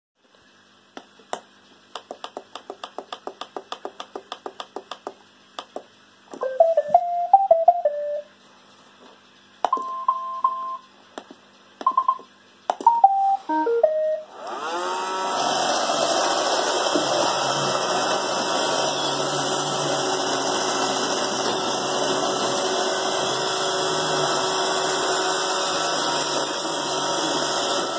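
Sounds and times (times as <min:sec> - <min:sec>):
electronic beep melodies: 0:06.4 - 0:08.3, 0:09.7 - 0:10.8, 0:11.8 - 0:14.3
vacuum motor whine: 0:13.8 - 0:27.9.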